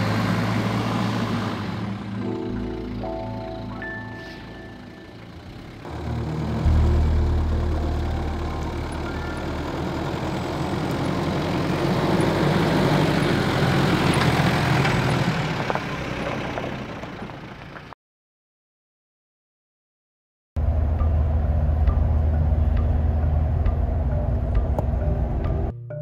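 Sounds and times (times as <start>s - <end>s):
car engine running: 0.0s - 17.9s, 20.6s - 25.7s.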